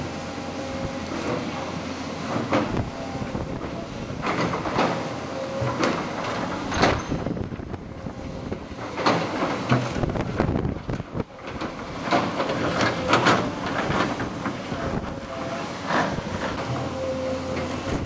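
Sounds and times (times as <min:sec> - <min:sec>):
excavator running: 0:00.0 - 0:18.0
metallic clanks and squeaks: 0:04.4 - 0:07.4.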